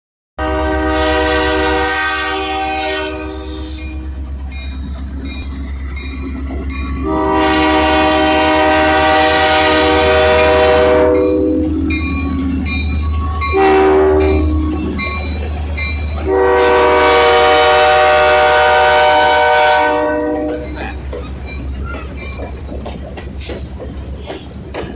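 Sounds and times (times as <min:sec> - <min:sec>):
locomotive air horn blasts: 0:00.4 - 0:04.2, 0:07.0 - 0:11.9, 0:13.5 - 0:14.9, 0:16.2 - 0:20.7
train wheels clicking over rail joints: 0:03.4 - 0:16.3, 0:20.4 - 0:24.9.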